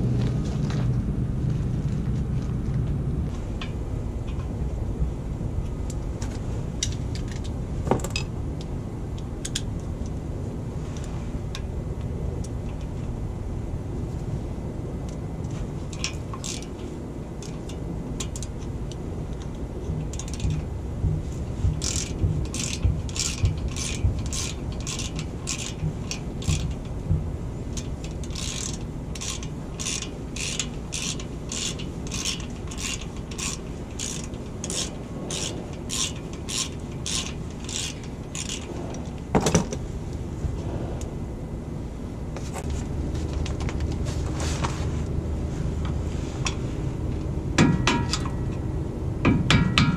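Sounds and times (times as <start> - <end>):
socket ratchet clicking: 16.0 - 16.7, 21.7 - 26.9, 27.7 - 38.7.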